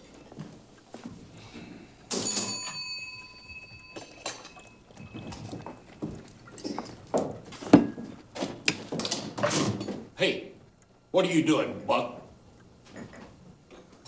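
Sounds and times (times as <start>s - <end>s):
glass clink ringing: 2.1s - 6.9s
bottle and glass clinking: 2.1s - 7.0s.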